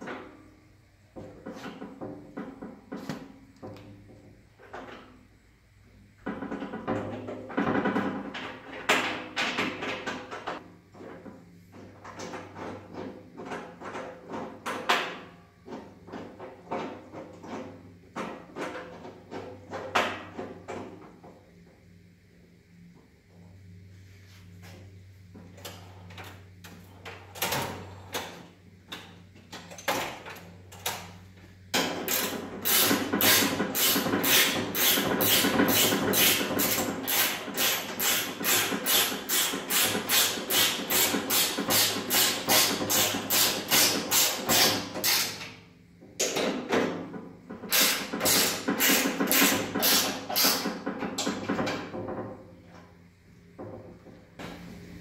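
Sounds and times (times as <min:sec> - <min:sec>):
scattered clicks and knocks: 0:06.2 - 0:21.4, 0:25.4 - 0:52.9
ratchet wrench clicking: 0:32.1 - 0:45.5, 0:47.7 - 0:50.7.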